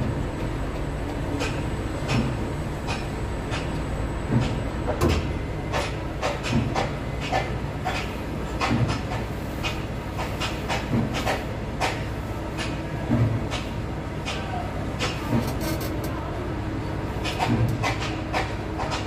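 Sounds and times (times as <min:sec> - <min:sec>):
irregular clicks and knocks: 0:00.0 - 0:14.4
crane machine hum: 0:00.0 - 0:19.0.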